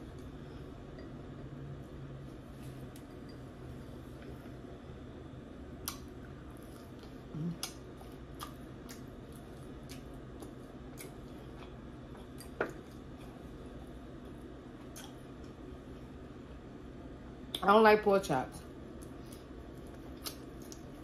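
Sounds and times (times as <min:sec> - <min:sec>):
wet mouth clicks and smacks chewing: 0:14.8 - 0:15.2, 0:19.0 - 0:20.9.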